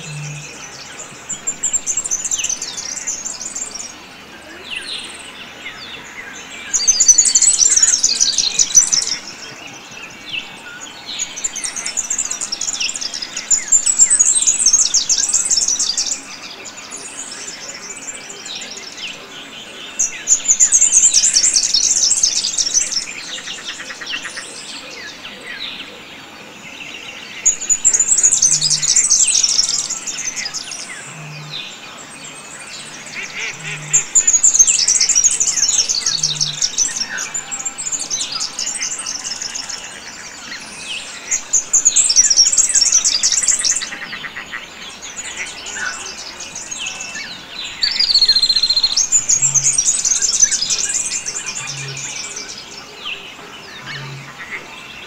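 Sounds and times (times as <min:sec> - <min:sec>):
low pulsing note: 0:00.0 - 0:01.0
quiet bird chirps and calls: 0:00.0 - 0:55.0.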